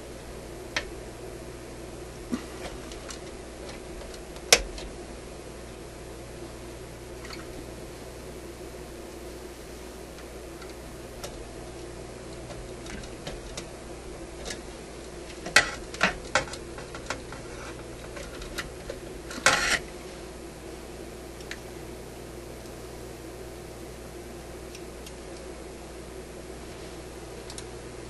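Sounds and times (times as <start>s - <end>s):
steady background hum: 0.0s - 28.0s
clicks handling capacitor: 0.7s - 1.0s, 2.3s - 5.0s, 10.1s - 19.9s, 24.6s - 25.5s, 27.4s - 27.8s.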